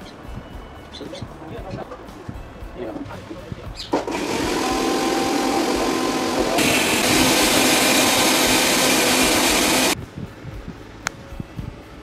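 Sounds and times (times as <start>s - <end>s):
mixer grinder running: 4.0s - 10.0s.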